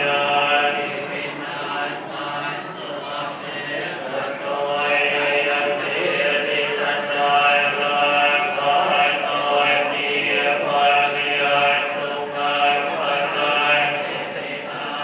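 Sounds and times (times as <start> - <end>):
men chanting through microphone: 0.0 - 15.0.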